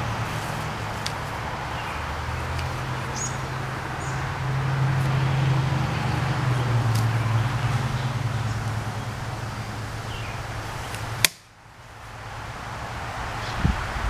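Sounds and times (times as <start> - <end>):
distant vehicle engine hum: 0.0 - 14.0.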